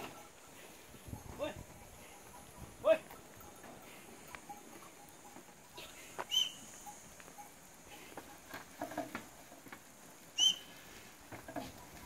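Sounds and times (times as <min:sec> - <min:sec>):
goats shuffling on stony ground: 0:00.0 - 0:12.0
soft hoof taps: 0:01.7 - 0:10.3
short high chirp: 0:06.3 - 0:06.7.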